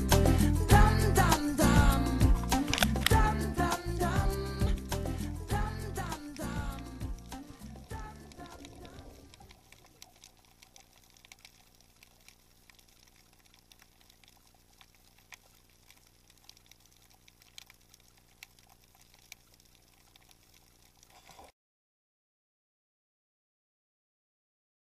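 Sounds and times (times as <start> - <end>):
sharp clicks and crackles: 2.5 - 3.2, 7.1 - 21.5.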